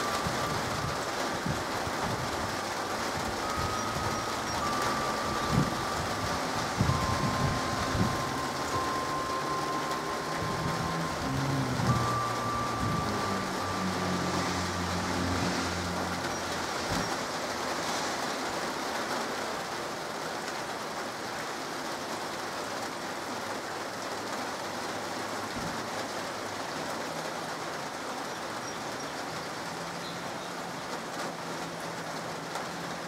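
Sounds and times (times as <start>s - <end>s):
rain on pavement and puddles: 0.0s - 33.0s
low hum: 3.1s - 18.0s.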